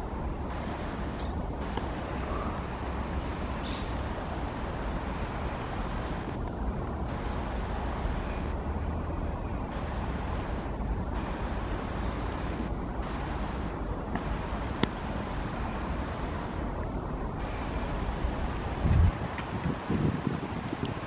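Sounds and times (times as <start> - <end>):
heavy rain: 0.0 - 21.0
wind rumble on microphone: 0.0 - 21.0
sharp tick: 0.6 - 1.9, 14.1 - 15.0.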